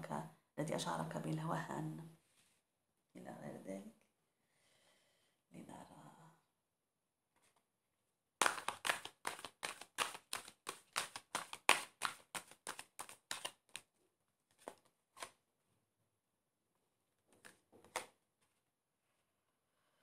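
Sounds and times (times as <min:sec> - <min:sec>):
cards slapping while shuffled: 0:08.4 - 0:13.9, 0:14.5 - 0:15.4, 0:17.4 - 0:18.2.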